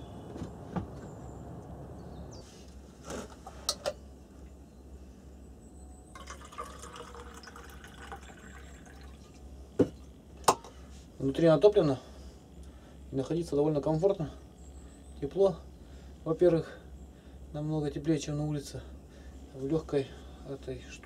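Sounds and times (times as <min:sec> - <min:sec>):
liquid trickling: 0:06.2 - 0:09.5.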